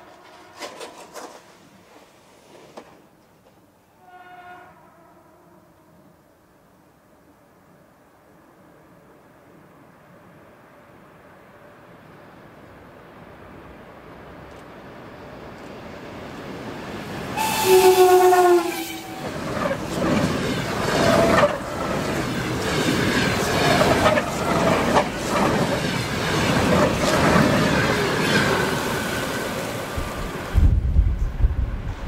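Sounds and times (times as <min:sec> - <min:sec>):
train horn: 0:00.0 - 0:01.2, 0:03.9 - 0:06.2, 0:17.4 - 0:19.4
train wheels clicking over rail joints: 0:00.1 - 0:03.6.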